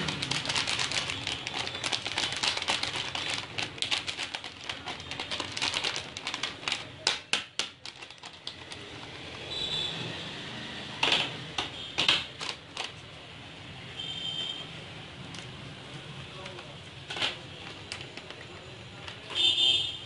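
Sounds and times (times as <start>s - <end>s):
plastic pouch crinkling: 0.0s - 9.6s.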